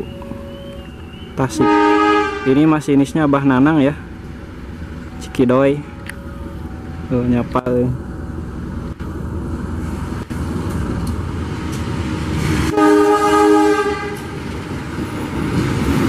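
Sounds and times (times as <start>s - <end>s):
train horn blast: 0.0s - 0.9s, 1.5s - 2.9s, 12.7s - 14.4s
diesel locomotive running: 0.0s - 16.0s.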